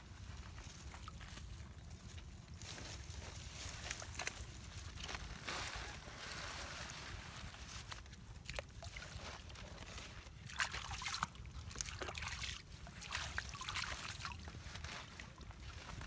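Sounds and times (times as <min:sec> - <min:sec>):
hands sloshing in muddy water: 0:07.0 - 0:16.0.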